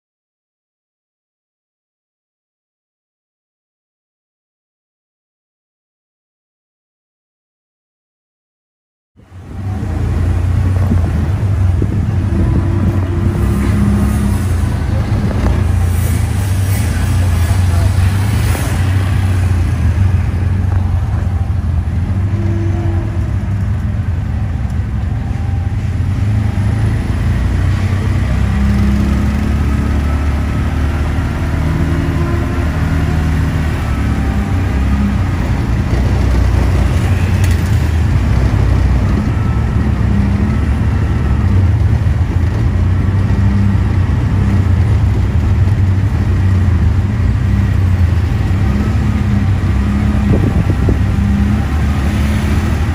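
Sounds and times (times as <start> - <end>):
road noise: 9.2 - 52.9.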